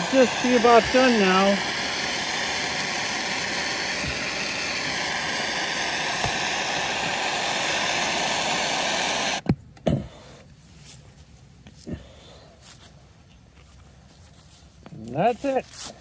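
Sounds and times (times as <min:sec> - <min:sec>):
gas torch flame hissing: 0:00.0 - 0:09.5.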